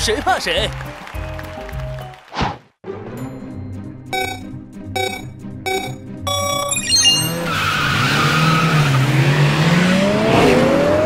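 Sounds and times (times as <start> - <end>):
countdown beeps: 4.1 - 7.6
cartoon car engines whining: 5.0 - 11.0.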